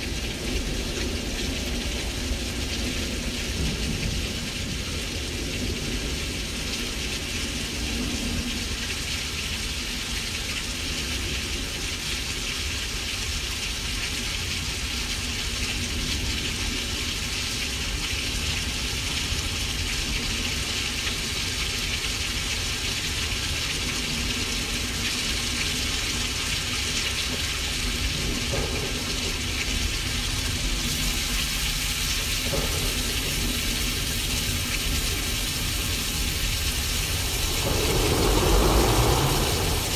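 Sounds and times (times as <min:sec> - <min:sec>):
rain-like hiss: 0:00.0 - 0:39.9
low thunder rumble: 0:32.4 - 0:39.9.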